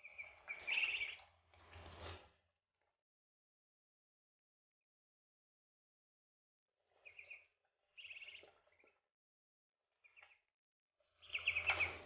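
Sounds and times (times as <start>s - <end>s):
duckling peeping: 0.0s - 1.3s, 6.9s - 9.0s, 10.0s - 10.4s, 11.0s - 12.0s.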